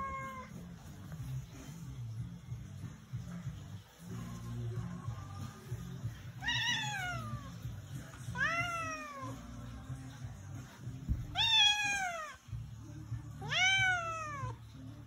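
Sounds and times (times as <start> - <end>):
cat meowing: 0.0 - 0.7, 6.3 - 7.6, 8.3 - 9.5, 11.2 - 12.4, 13.4 - 14.6.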